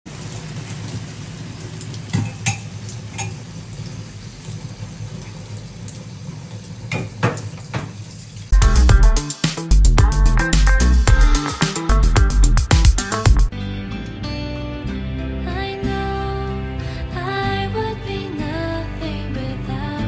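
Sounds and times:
sauce bubbling and sizzling: 0:00.1 - 0:08.7.

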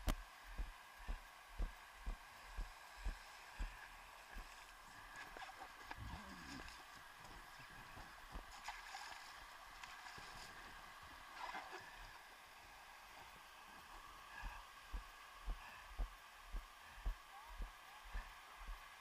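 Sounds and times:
dull low thumps: 0:00.0 - 0:04.5, 0:14.5 - 0:18.8
faint wash of water: 0:00.4 - 0:14.3.

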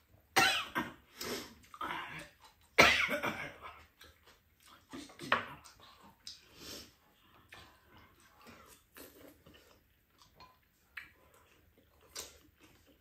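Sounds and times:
woman coughing: 0:00.4 - 0:01.0, 0:02.8 - 0:03.6.

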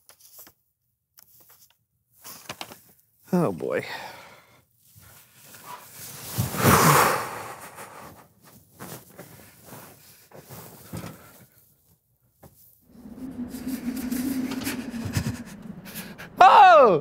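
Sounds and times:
person exhaling heavily: 0:06.6 - 0:08.1
footsteps: 0:12.9 - 0:16.4.

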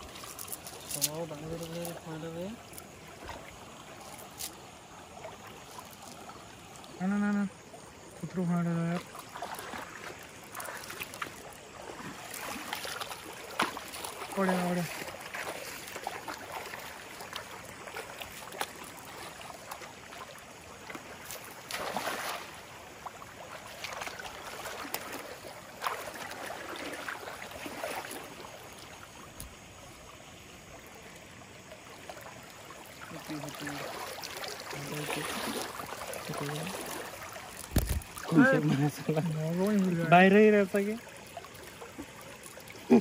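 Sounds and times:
river water running: 0:00.0 - 0:43.0
splashes of cast net: 0:08.9 - 0:29.0, 0:31.8 - 0:39.9
water pouring off net: 0:21.2 - 0:22.7, 0:33.0 - 0:40.1.

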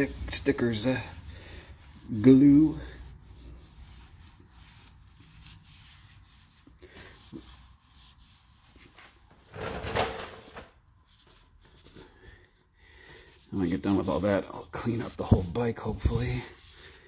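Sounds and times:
cloth rubbing on metal frame: 0:00.0 - 0:12.1, 0:13.2 - 0:17.0.

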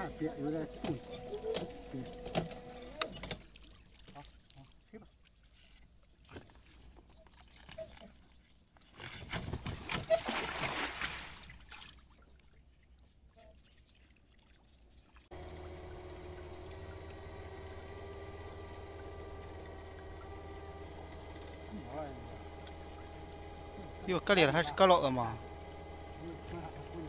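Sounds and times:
steady hum with held tones: 0:00.0 - 0:03.3, 0:15.3 - 0:27.0
cast net splashing into river: 0:08.9 - 0:12.2.

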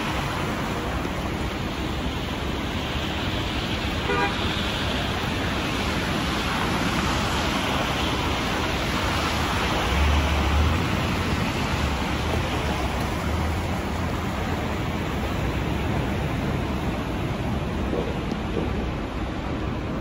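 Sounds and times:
bus idling: 0:00.0 - 0:06.8
traffic on wet slushy road: 0:00.0 - 0:20.0.

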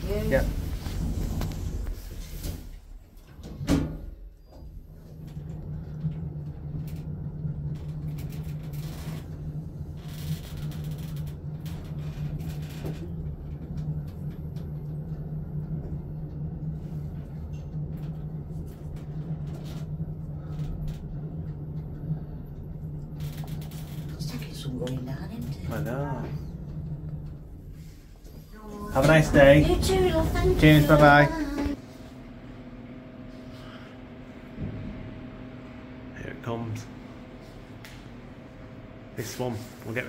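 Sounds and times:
lift doors shutting with a thud: 0:00.0 - 0:06.7
lift low hum: 0:00.0 - 0:40.0.

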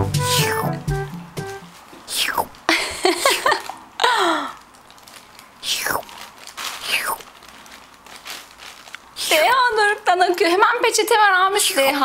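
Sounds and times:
child's falling vocal sound: 0:00.3 - 0:00.8
children licking popsicles: 0:05.6 - 0:07.3.

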